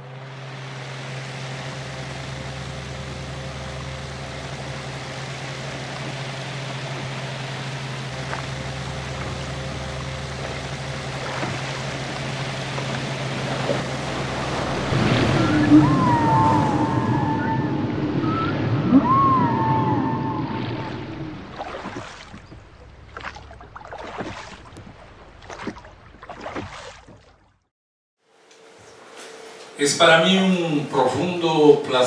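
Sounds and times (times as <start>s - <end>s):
low hum: 0.0s - 26.6s
sliding whale-like calls: 4.3s - 23.7s.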